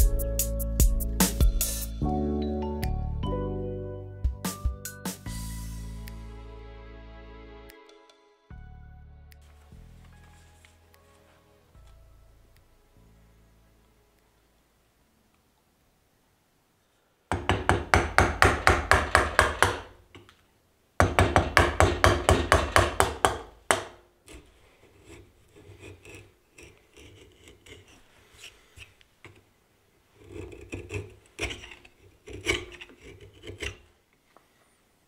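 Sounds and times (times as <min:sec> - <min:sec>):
chisel scraping wood: 0:21.5 - 0:29.5, 0:30.1 - 0:33.9.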